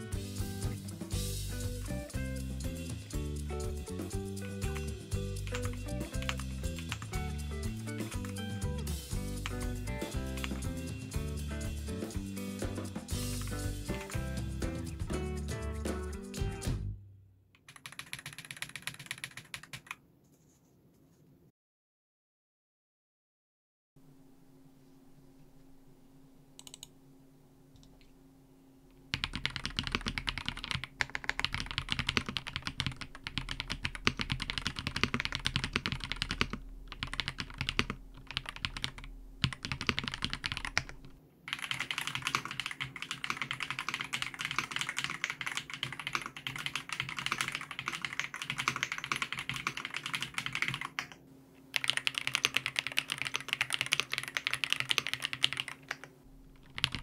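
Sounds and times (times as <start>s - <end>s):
fast mechanical keyboard typing: 4.4s - 8.6s, 17.6s - 20.0s, 29.1s - 57.0s.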